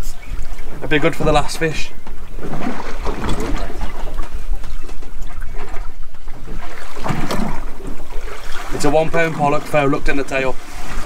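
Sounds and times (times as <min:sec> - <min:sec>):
water slapping against boat hull: 0:00.0 - 0:11.0.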